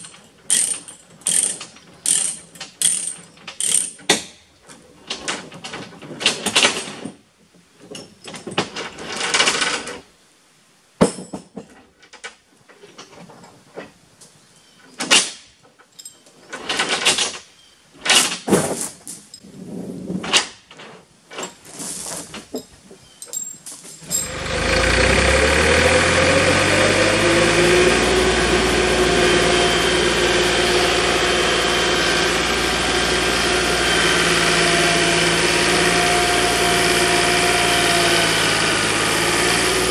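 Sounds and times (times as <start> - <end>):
skid steer engine: 24.0 - 39.9.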